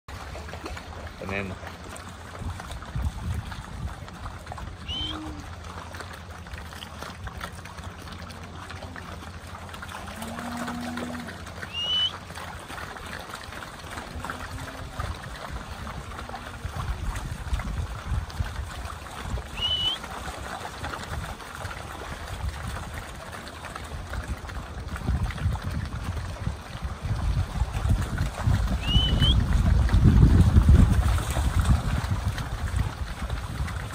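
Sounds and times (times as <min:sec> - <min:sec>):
hooves squelching in mud: 0:00.1 - 0:33.9.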